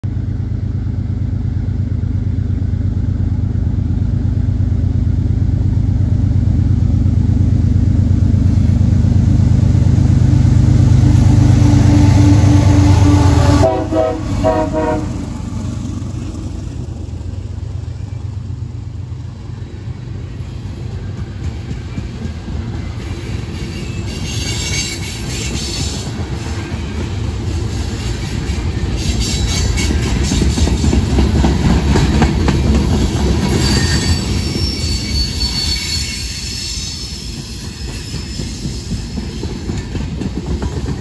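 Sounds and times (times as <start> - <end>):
diesel locomotive rumble: 0.0 - 41.0
train horn chord: 10.2 - 15.5.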